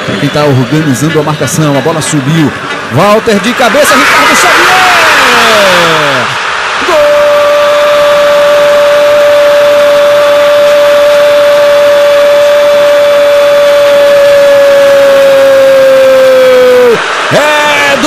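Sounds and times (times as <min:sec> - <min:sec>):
stadium crowd cheering: 0:02.3 - 0:18.0
commentator shouting: 0:03.0 - 0:18.0.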